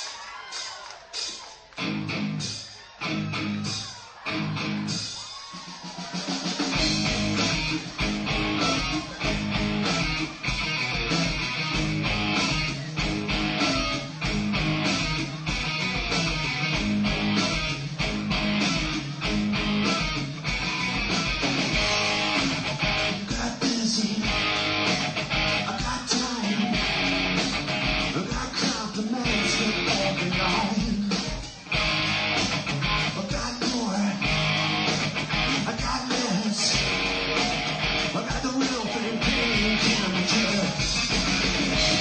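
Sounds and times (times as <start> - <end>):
rock band playing: 0.5 - 42.0
guitar chords ringing: 6.8 - 23.3.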